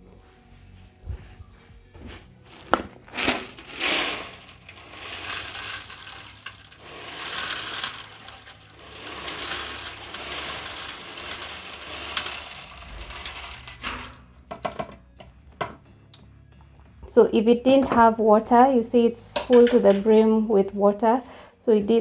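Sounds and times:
salt granules pouring through funnel: 2.5 - 14.2.

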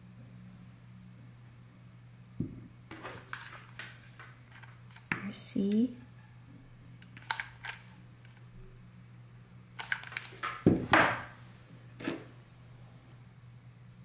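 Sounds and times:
metal stamp clink: 12.0 - 12.3.

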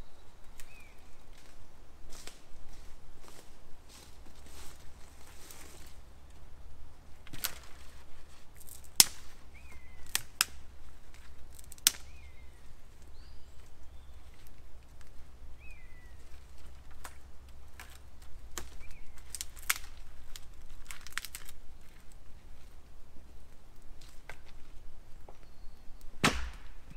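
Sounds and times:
bird chirping: 0.0 - 1.2, 9.5 - 10.2, 12.0 - 14.4, 15.5 - 16.6, 18.6 - 19.4, 25.3 - 26.2
campfire sticks cracking: 7.2 - 15.2, 16.2 - 22.8, 23.4 - 24.9.

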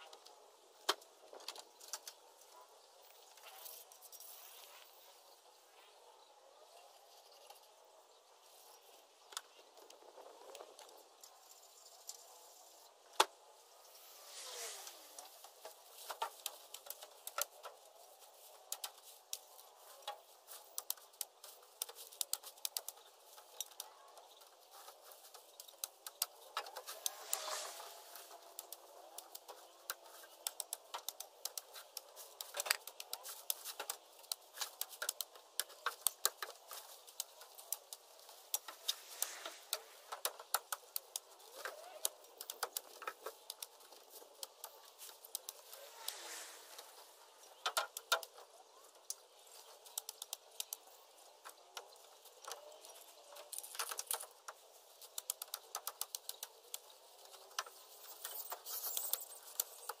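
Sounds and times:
branches rustling: 12.2 - 60.0.

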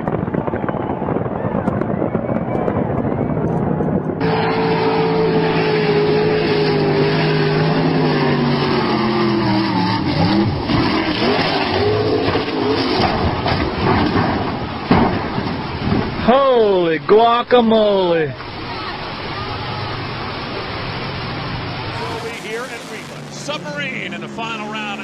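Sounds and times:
racing boat engine at high speed: 0.0 - 25.0
spray noise: 21.9 - 24.3.

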